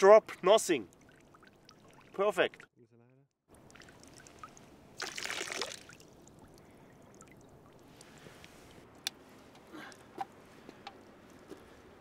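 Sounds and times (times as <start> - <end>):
faint water drips: 0.3 - 2.8, 3.5 - 12.0
water pouring from wooden cup: 0.9 - 2.7, 3.5 - 8.3.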